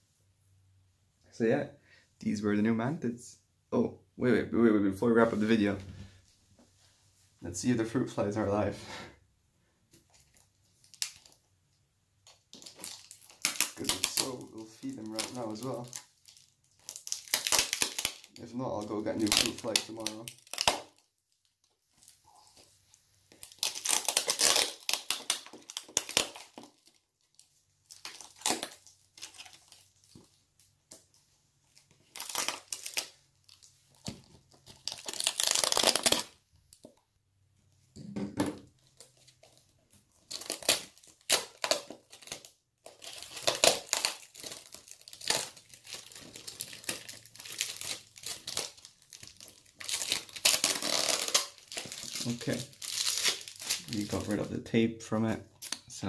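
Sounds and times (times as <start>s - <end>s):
sticky tape peeling and ripping: 12.3s - 21.1s, 23.3s - 27.0s, 27.9s - 30.2s, 31.7s - 36.4s, 40.3s - 54.5s.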